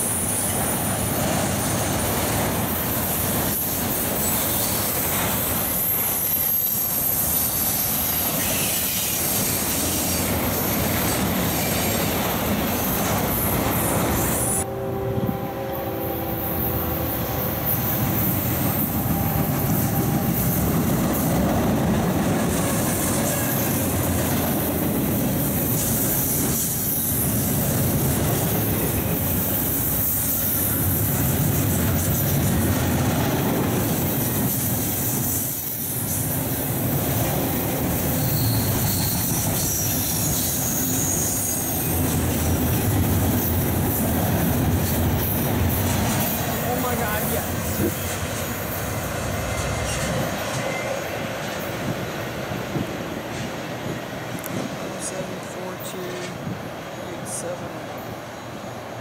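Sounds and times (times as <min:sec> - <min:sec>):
train wheels rumbling on rail: 0:00.0 - 0:59.0
locomotive horn chord: 0:14.6 - 0:18.1.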